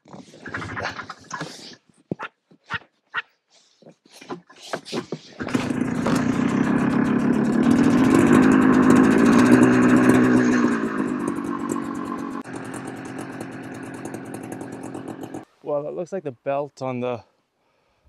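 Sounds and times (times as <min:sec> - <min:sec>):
snowmobile engine revving and idling: 0:05.4 - 0:15.5.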